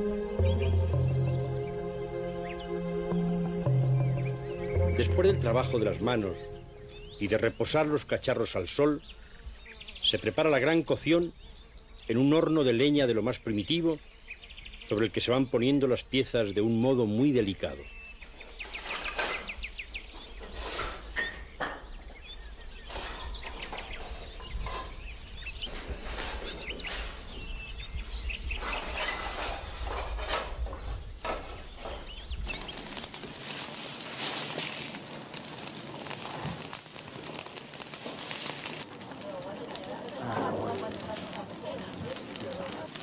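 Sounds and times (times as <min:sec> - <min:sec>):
brushwood fire crackling: 0:03.7 - 0:09.3, 0:28.5 - 0:43.0.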